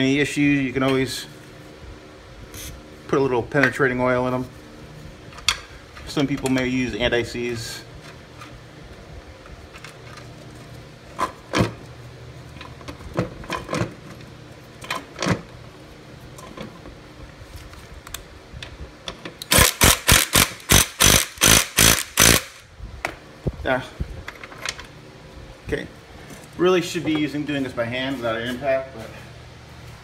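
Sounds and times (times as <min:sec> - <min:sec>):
impact driver bursts: 0:19.4 - 0:22.7.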